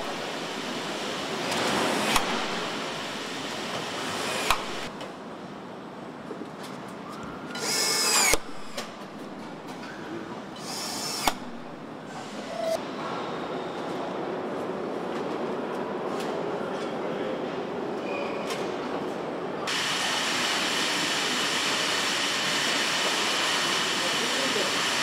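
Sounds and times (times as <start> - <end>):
assembly line noise: 0.0 - 4.9, 10.6 - 12.8
power tool whirring: 1.5 - 4.9, 7.6 - 8.9, 10.6 - 12.8.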